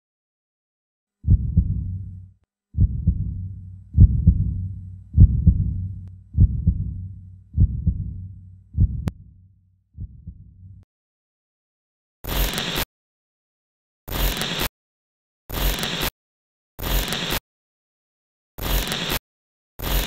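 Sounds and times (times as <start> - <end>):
heartbeat thumps: 1.2 - 2.2, 2.8 - 9.2, 10.0 - 10.8.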